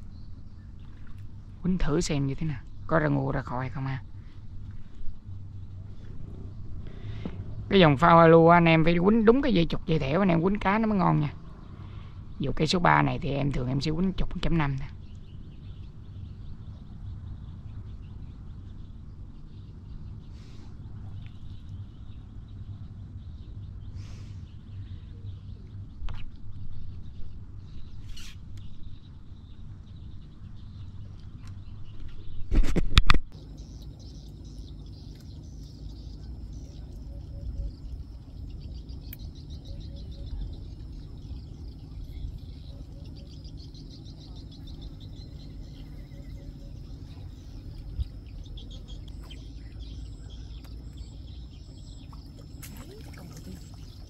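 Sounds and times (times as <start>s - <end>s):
wind rumble on microphone: 0.0s - 54.0s
faint bird chirps: 15.0s - 32.5s, 33.4s - 54.0s
wind buffeting microphone: 28.6s - 54.0s
insects buzzing: 33.4s - 54.0s
light splash on water: 52.1s - 54.0s.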